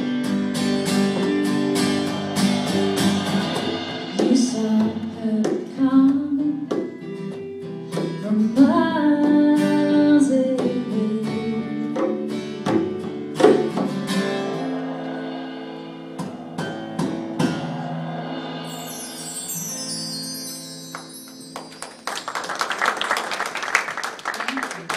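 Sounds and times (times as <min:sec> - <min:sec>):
strummed acoustic guitar: 0:00.0 - 0:18.6
electric guitar: 0:00.0 - 0:19.0
drum and cymbal hits: 0:00.4 - 0:08.3, 0:12.0 - 0:21.3
woman singing: 0:04.1 - 0:06.8, 0:08.2 - 0:12.7.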